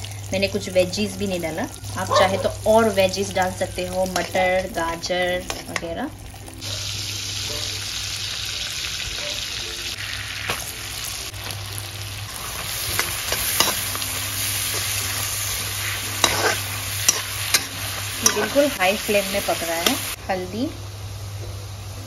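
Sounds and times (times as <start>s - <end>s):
hot oil sizzling: 0.0s - 22.0s
spatula scraping pan: 12.3s - 18.8s.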